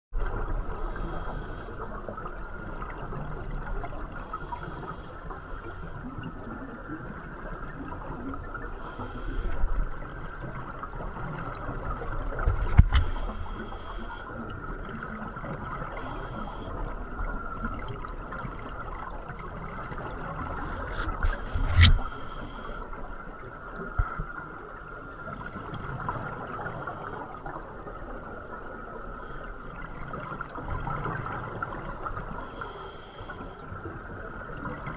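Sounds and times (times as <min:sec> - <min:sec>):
underwater exhaust bubbles: 0:00.1 - 0:34.9
steady hiss: 0:20.6 - 0:22.9.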